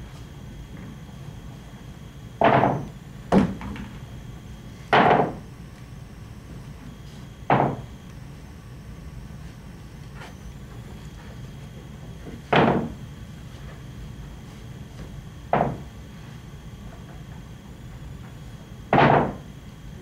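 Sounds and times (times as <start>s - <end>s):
pool balls knocking on table: 2.4s - 4.0s, 4.9s - 5.4s, 7.5s - 7.8s, 12.5s - 13.0s, 15.5s - 15.8s, 18.9s - 19.4s.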